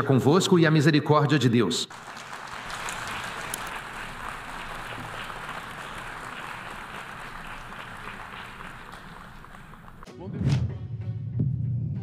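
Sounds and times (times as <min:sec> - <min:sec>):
audience applauding: 0:01.9 - 0:10.1.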